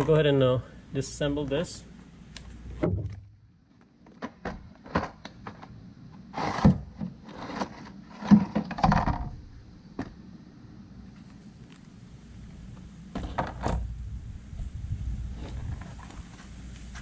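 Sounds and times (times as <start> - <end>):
thunks on concrete: 2.8 - 3.3.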